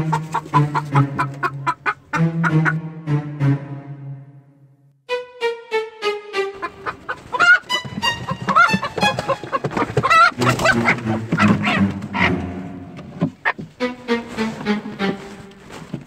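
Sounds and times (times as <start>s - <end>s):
chickens squawking and clucking: 0.0s - 2.8s, 6.4s - 15.7s
background music: 0.0s - 16.0s.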